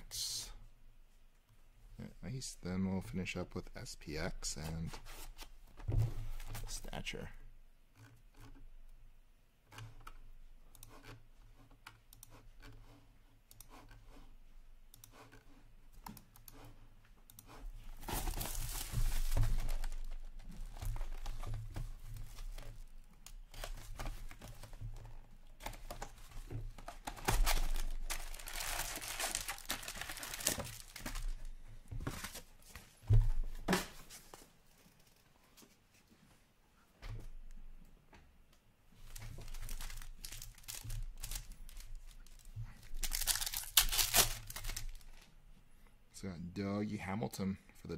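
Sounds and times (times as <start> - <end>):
handling of cardboard box: 17.7 - 22.9, 23.6 - 34.4
plastic wrap tearing and crinkling: 18.0 - 20.3, 26.9 - 31.5, 39.0 - 45.2.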